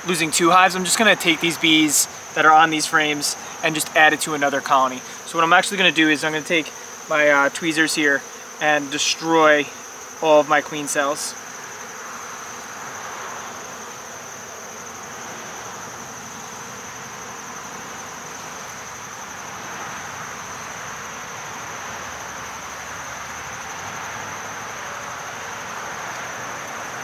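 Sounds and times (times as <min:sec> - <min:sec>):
honeybees buzzing: 0:00.0 - 0:27.0.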